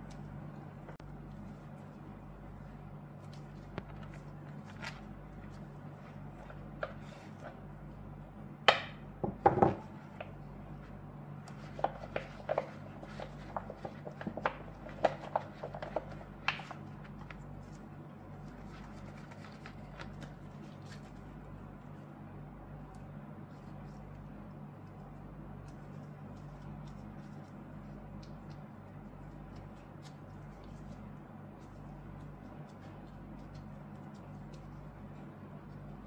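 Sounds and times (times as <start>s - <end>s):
steady low hum: 0.0s - 36.0s
metal ring knocking on surface: 8.7s - 9.8s.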